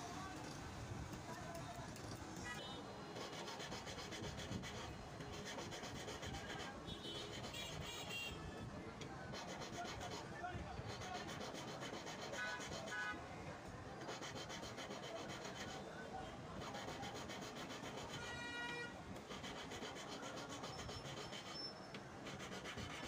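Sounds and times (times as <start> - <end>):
hand file rasping on metal ring: 3.1 - 8.1, 9.3 - 13.1, 14.0 - 15.8, 16.6 - 18.4, 19.2 - 23.0.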